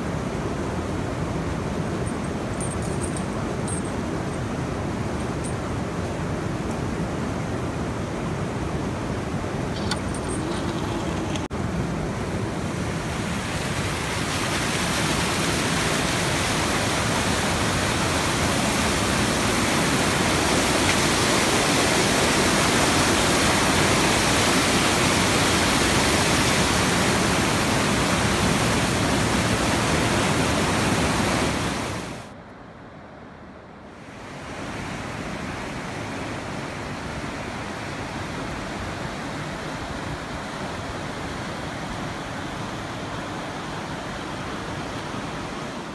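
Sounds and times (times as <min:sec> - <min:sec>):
water rushing through dam: 0:00.0 - 0:32.3.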